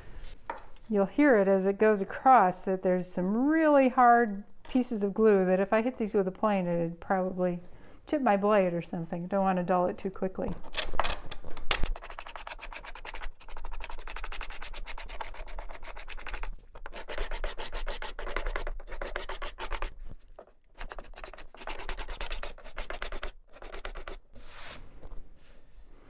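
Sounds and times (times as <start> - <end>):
card scraper scraping wood: 13.8 - 20.0.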